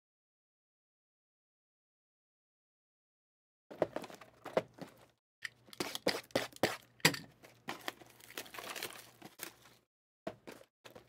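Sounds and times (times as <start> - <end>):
packaging crinkling and tearing: 7.4 - 9.8.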